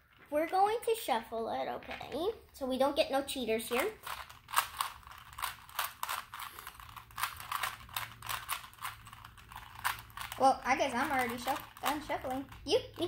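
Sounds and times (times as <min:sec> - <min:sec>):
puzzle cube twisting clicks: 0:03.7 - 0:10.4.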